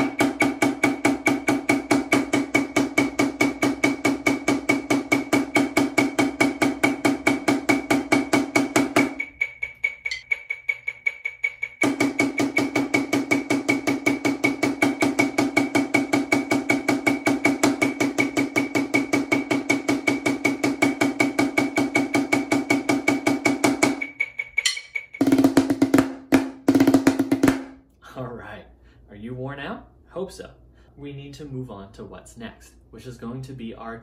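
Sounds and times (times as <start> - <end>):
louder drum hits: 25.2 - 27.8.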